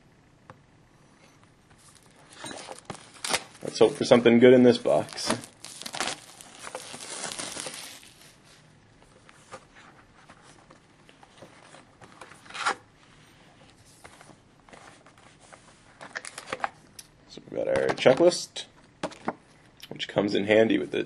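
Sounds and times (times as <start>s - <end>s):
plastic shrink-wrap tearing and crinkling: 1.8s - 8.4s.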